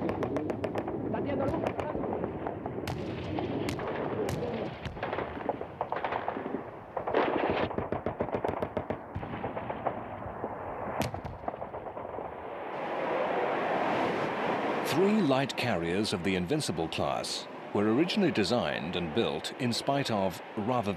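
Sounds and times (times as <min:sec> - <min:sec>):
gunshots and rapid bursts: 0:00.0 - 0:01.9, 0:02.8 - 0:12.4
steady rushing noise: 0:09.8 - 0:20.9.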